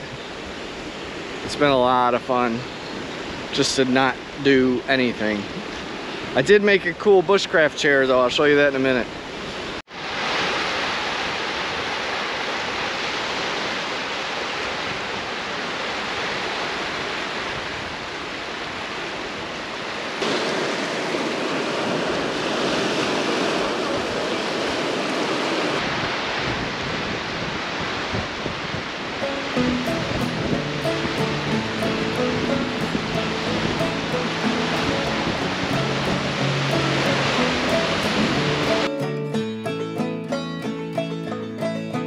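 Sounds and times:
lake waves washing onto beach: 0.0 - 40.0
wind over microphone: 20.4 - 38.8.

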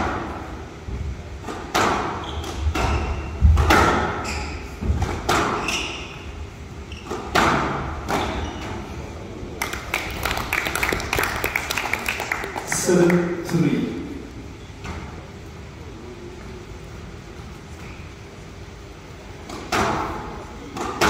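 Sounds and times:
ball hitting walls: 1.4 - 4.2, 4.8 - 5.8, 7.1 - 8.8, 19.4 - 21.0
squash racket strikes: 1.4 - 6.2, 7.0 - 8.8, 19.4 - 21.0
shoe squeaks on court floor: 2.2 - 3.3, 4.2 - 4.8, 5.5 - 7.3, 8.2 - 8.9
audience clapping: 9.6 - 13.6.

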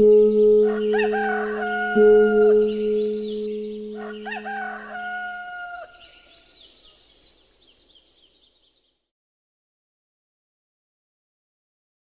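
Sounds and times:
low ringing tone: 0.0 - 4.0
high bird chirps: 0.0 - 8.9
rooster crowing: 0.6 - 6.6.

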